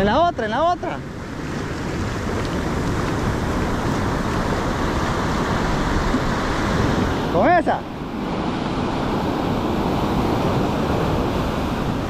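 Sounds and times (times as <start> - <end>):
waves breaking on beach: 0.0 - 12.0
wind rumbling on microphone: 0.0 - 12.0.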